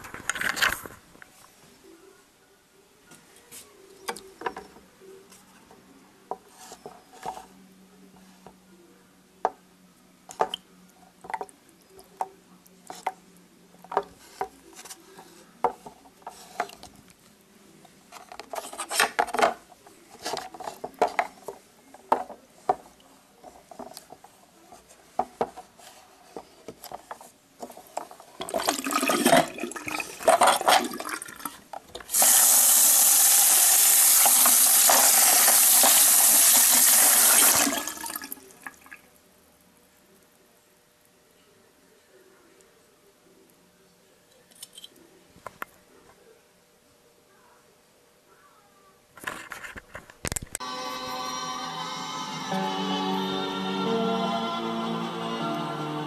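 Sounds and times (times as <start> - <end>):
liquid sloshing in plastic tub: 28.4 - 31.6
faucet running: 32.1 - 38.9.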